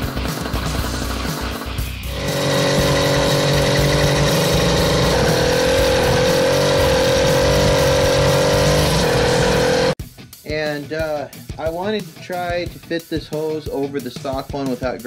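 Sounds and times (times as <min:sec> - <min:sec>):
two-stroke engine running: 0:00.0 - 0:10.0.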